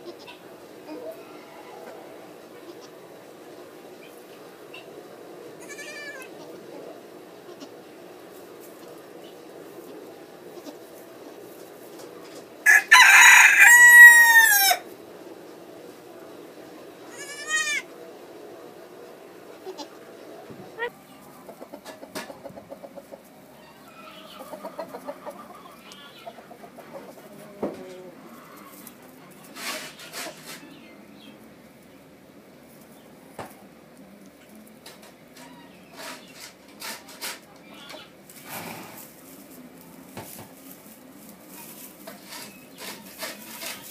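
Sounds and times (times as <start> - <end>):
rooster crowing: 12.6 - 14.9.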